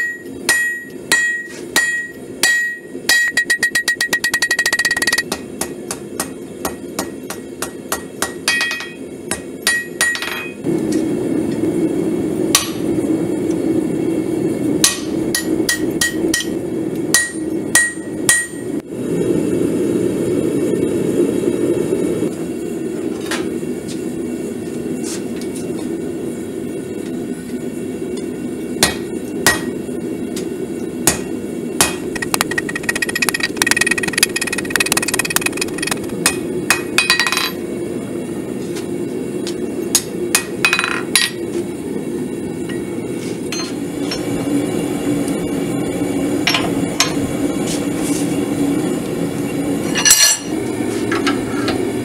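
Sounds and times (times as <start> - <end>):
anvil ringing: 0.0 - 10.6
hammer striking steel on anvil: 0.0 - 11.0, 12.5 - 12.9, 14.8 - 18.8, 28.2 - 29.8, 31.0 - 37.6, 39.9 - 41.4, 43.5 - 44.3
gas forge burner roar: 0.0 - 52.0.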